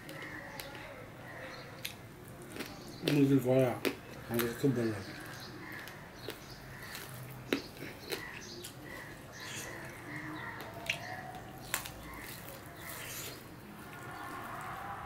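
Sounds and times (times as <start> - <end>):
fingers squishing food: 0.0 - 14.6
person chewing: 1.8 - 3.2, 3.8 - 14.4.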